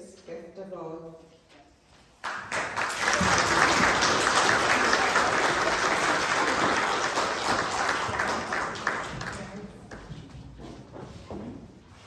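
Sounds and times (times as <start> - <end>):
congregation applauding: 2.2 - 9.9.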